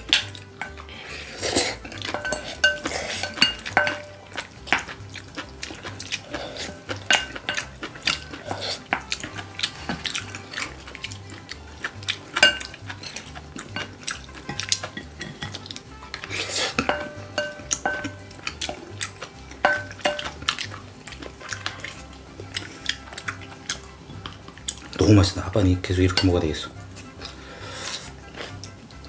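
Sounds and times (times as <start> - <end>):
wooden spoons clinking on glass bowls: 1.8 - 5.0, 6.6 - 9.2, 12.1 - 15.7, 16.7 - 20.8, 25.9 - 26.8.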